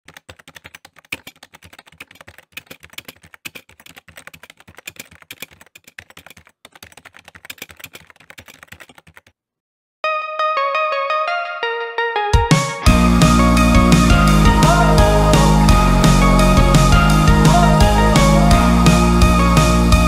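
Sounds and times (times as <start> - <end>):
fast keyboard typing: 0.0 - 9.4.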